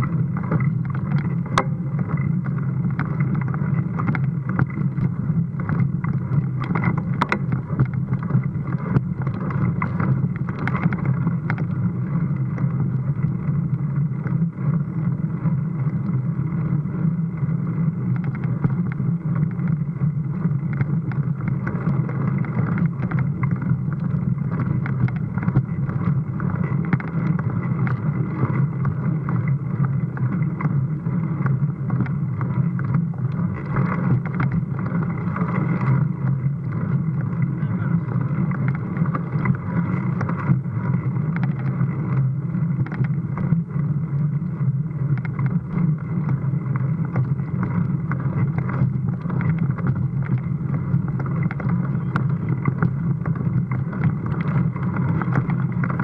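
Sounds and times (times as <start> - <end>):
small clicks and rattles: 0.0 - 56.0
wind on microphone: 0.0 - 56.0
tyres rumbling on dirt: 45.2 - 56.0.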